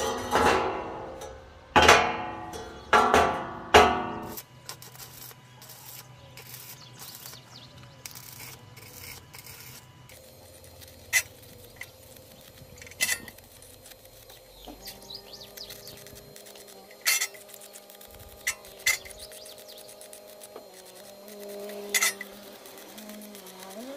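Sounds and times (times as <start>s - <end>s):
sharp metallic knocks: 0.0s - 4.4s
rasping strokes on metal: 4.2s - 23.9s.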